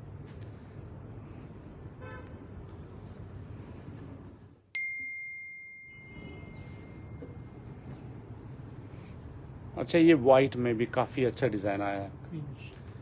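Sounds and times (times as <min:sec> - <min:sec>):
low background noise: 0:00.0 - 0:13.0
phone notification ding: 0:04.8 - 0:07.5.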